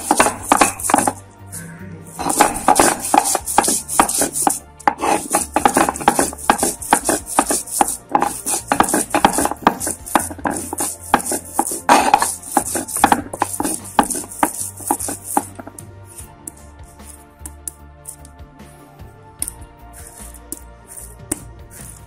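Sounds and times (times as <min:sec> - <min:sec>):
stone roller grinding on stone: 0:00.0 - 0:01.2, 0:02.2 - 0:15.8.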